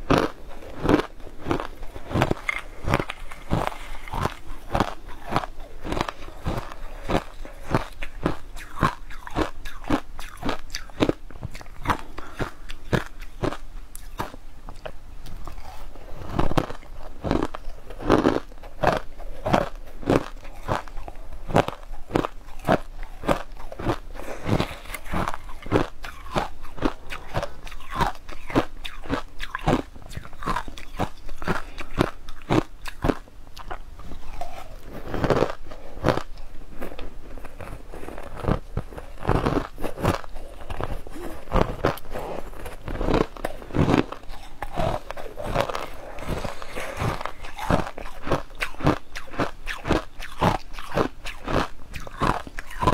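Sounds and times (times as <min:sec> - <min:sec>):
crunching crushed ice: 0:00.1 - 0:11.2, 0:37.3 - 0:52.9.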